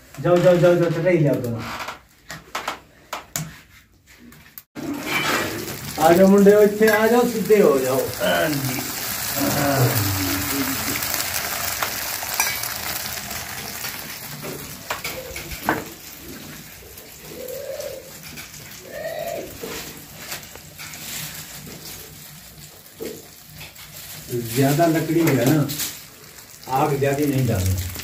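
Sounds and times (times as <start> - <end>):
omelette sizzling in hot oil: 4.8 - 28.0
dove cooing: 9.4 - 11.3, 14.6 - 20.2.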